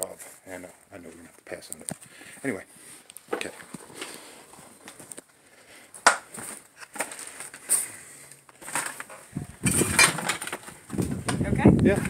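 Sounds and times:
footsteps crunching over debris: 2.8 - 12.0.

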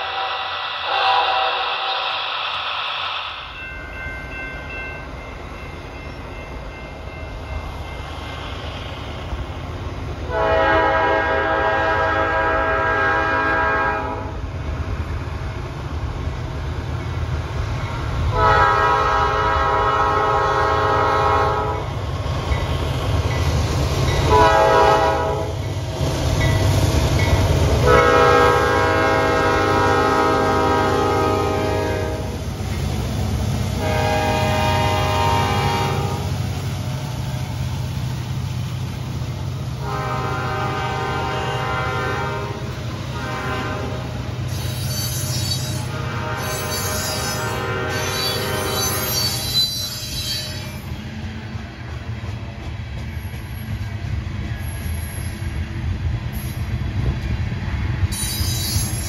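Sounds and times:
locomotive air horn blasts: 0.0 - 2.0, 10.3 - 14.4, 18.3 - 21.8, 24.3 - 25.5, 27.8 - 32.4, 33.8 - 36.3, 39.8 - 44.2, 45.8 - 49.7.

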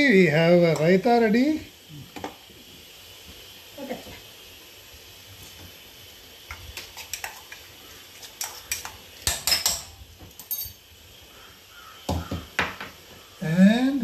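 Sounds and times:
dishes and utensils clinking: 8.2 - 10.8.

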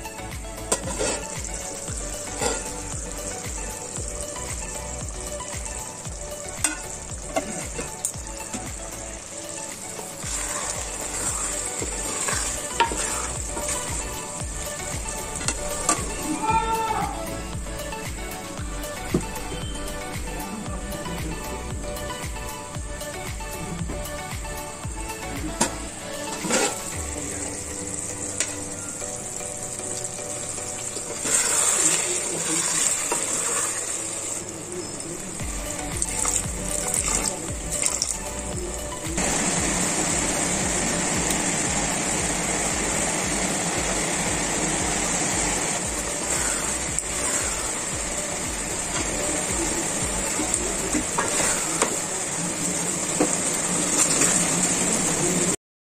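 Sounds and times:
curry sizzling in a pot: 0.0 - 55.6
spatula scraping a pot: 0.7 - 2.9, 10.3 - 14.2, 26.3 - 27.0, 31.1 - 34.3, 46.1 - 47.8, 51.0 - 52.0
ladle stirring: 0.7 - 3.5, 10.2 - 16.2, 25.6 - 27.0, 30.8 - 34.5, 48.9 - 52.0.

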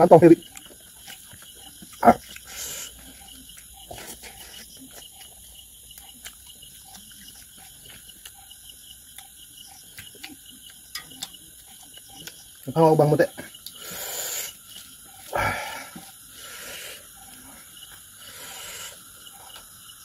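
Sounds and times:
chewing and lip smacks: 0.4 - 12.7.

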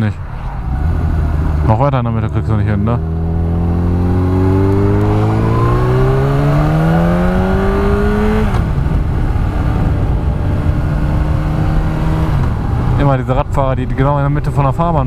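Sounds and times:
motorcycle engine revving: 0.7 - 13.0
wind on microphone: 3.0 - 14.7.

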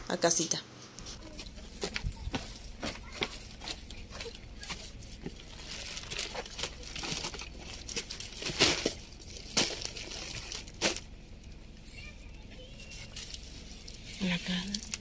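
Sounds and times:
plastic bags crinkling: 1.3 - 11.6
footsteps on gravel: 1.4 - 5.5.

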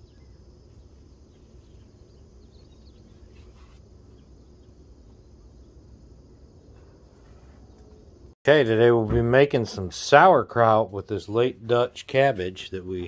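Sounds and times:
insects chirring: 0.0 - 8.4.

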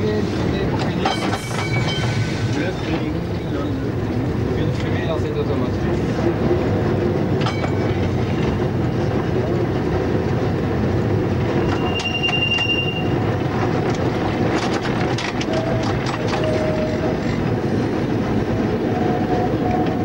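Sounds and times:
tram wheels rumbling: 0.0 - 20.0
wheel squeal: 11.5 - 13.3
sharp clicks and knocks: 13.6 - 16.6.

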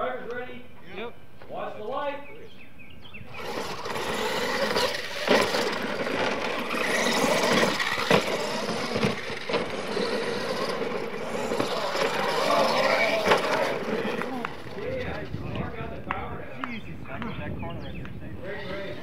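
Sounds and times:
tyres churning dirt: 3.1 - 17.4
toy truck motors running: 3.2 - 16.1, 18.4 - 19.0
trucks knocking on landing: 3.4 - 15.7.

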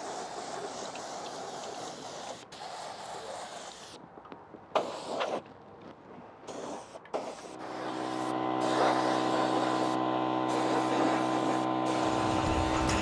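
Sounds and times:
air spray gun hissing: 6.5 - 13.0
steady droning hum: 7.6 - 13.0.

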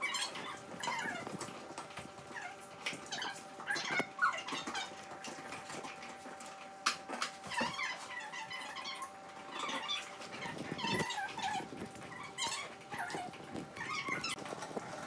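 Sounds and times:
small dog squeaking and whining: 0.0 - 1.5, 2.3 - 5.4, 7.4 - 14.4.

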